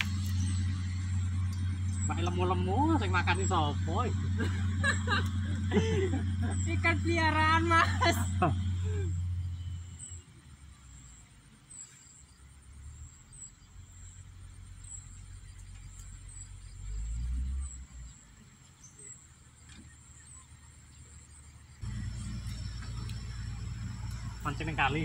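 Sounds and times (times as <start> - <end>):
wind rumble: 21.8 - 25.0.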